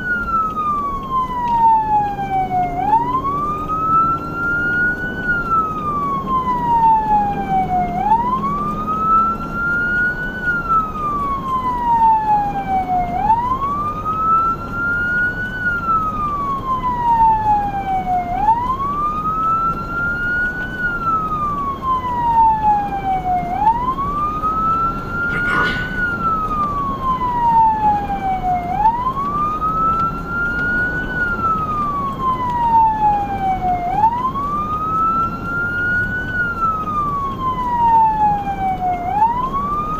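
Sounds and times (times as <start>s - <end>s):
siren wailing: 0.0s - 39.9s
vehicle rumble on road: 0.0s - 39.9s
short sharp siren burst: 24.9s - 27.5s.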